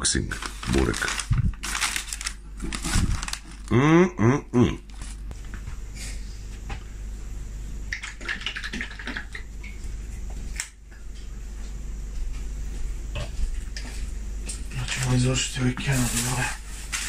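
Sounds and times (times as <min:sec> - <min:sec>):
paper wrapping rustling: 0:00.2 - 0:03.7, 0:04.9 - 0:05.3, 0:14.8 - 0:17.0.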